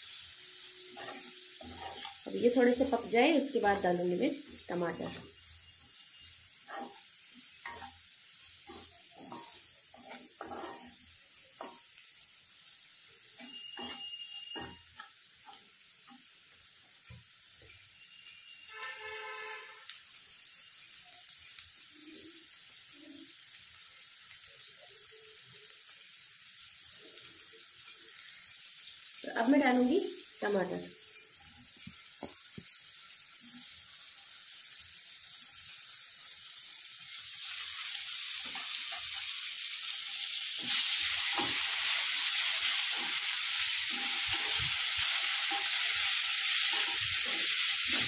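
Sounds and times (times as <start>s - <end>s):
food sizzling in oil: 0.0s - 48.0s
spatula scraping and tapping pan: 0.9s - 2.5s, 7.6s - 8.0s, 8.6s - 12.0s, 13.4s - 16.2s, 31.7s - 32.8s.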